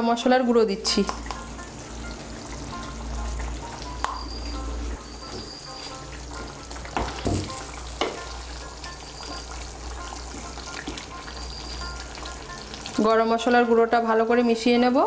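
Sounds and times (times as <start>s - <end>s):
curry bubbling and sizzling: 0.8s - 15.0s.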